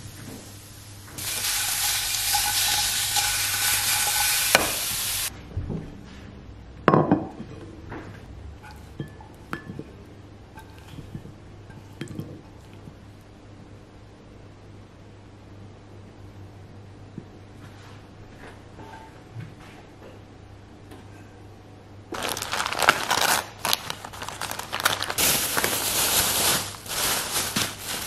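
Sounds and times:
tomatoes sizzling in a frying pan: 0:00.0 - 0:05.3
spatula scraping pan: 0:01.2 - 0:05.2.

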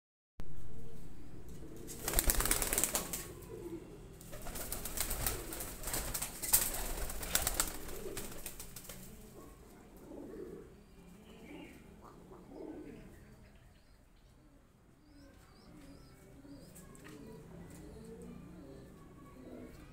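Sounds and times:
pigeons cooing: 0:01.6 - 0:19.9
pigeon wings flapping: 0:01.8 - 0:03.4, 0:04.3 - 0:09.2.

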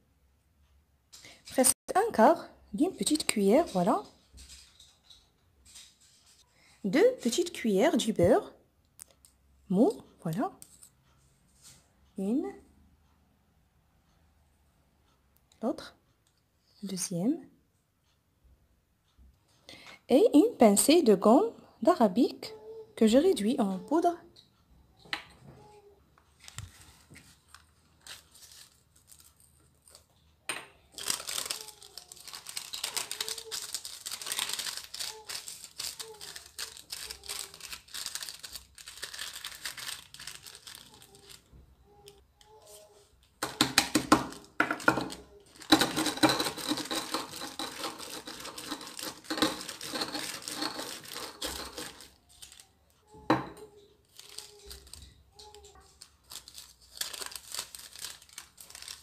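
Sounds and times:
paper crinkling: 0:26.3 - 0:30.1, 0:30.9 - 0:42.8, 0:43.4 - 0:52.8, 0:54.0 - 0:59.0.

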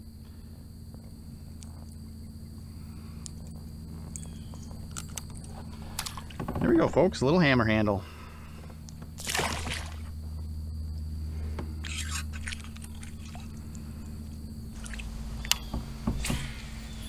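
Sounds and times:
fish splashing into water: 0:09.2 - 0:10.1, 0:11.8 - 0:13.6, 0:14.8 - 0:15.1
light water splashes: 0:09.2 - 0:10.1, 0:11.8 - 0:13.8, 0:14.7 - 0:15.6.

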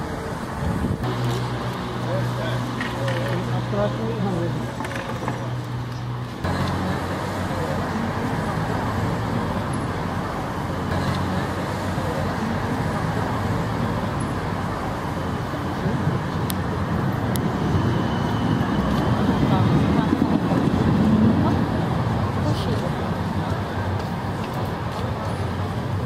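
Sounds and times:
street traffic rumble: 0:00.0 - 0:26.0.

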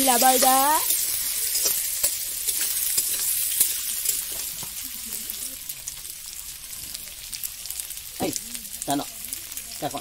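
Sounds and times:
metal spatula scraping a pan: 0:00.0 - 0:04.7
potato slices sizzling in wok: 0:00.0 - 0:10.0.

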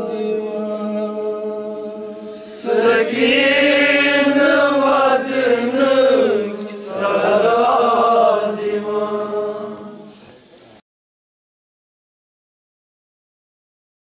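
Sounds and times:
man chanting a lament: 0:06.2 - 0:07.7.

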